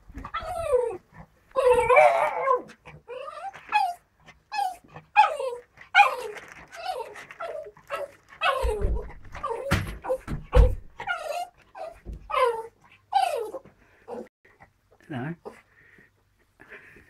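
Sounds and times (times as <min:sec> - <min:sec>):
dog whining: 0:00.1 - 0:14.3.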